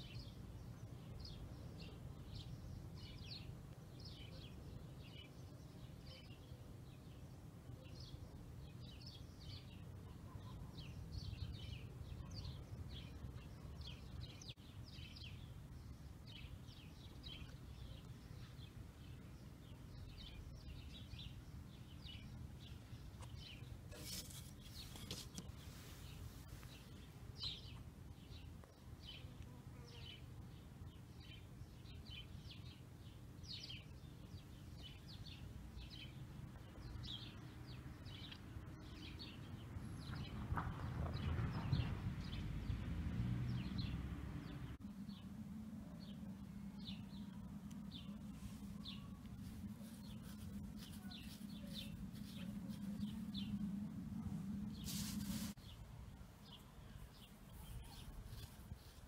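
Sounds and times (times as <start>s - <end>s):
brief rustle: 23.2s - 26.8s, 54.8s - 55.6s
low background rumble: 40.0s - 59.0s
faint high chirping calls: 46.1s - 53.6s, 56.5s - 59.0s.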